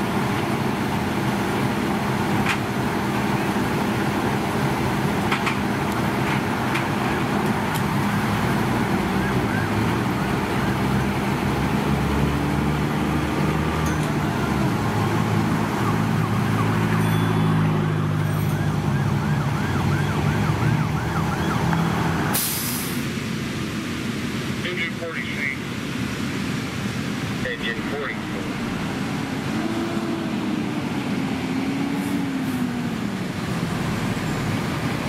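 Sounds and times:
diesel engine running: 0:00.0 - 0:35.0
emergency siren yelping: 0:08.9 - 0:10.4, 0:13.9 - 0:22.3.

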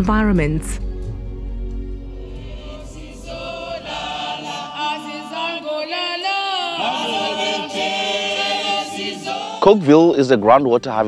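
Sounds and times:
low music bed: 0:00.0 - 0:11.0
choir singing in harmony: 0:00.8 - 0:10.2.

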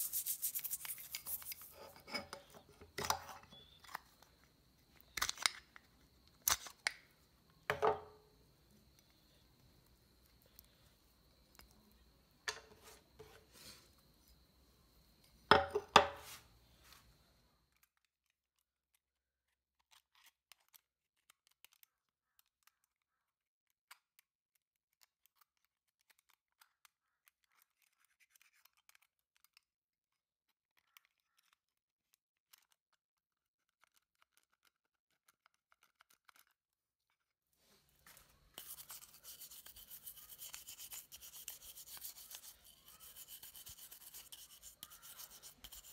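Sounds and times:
toothbrush scrubbing metal: 0:00.0 - 0:02.2, 0:38.5 - 0:45.9.

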